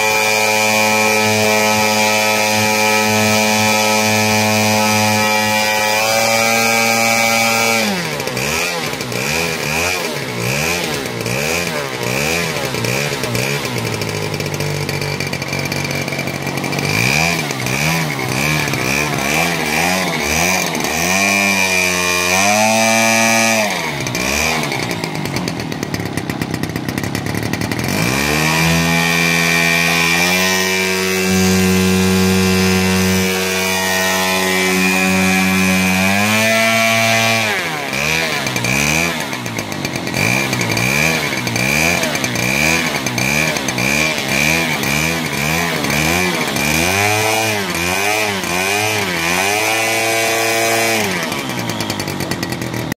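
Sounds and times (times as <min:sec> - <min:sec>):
model aircraft engine running: 0:00.0 - 0:52.9.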